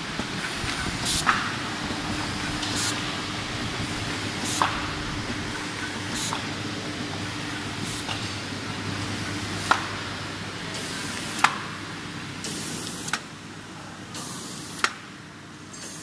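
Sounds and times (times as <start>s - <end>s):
paper feeder motor hum: 0.0s - 8.3s
air hiss: 0.6s - 5.5s.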